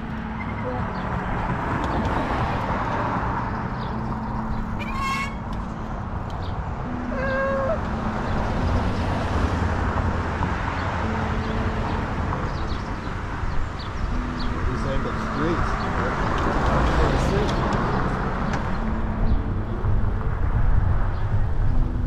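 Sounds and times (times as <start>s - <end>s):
wind and road noise: 0.0s - 22.0s
high-pitched squeaks: 4.7s - 5.8s.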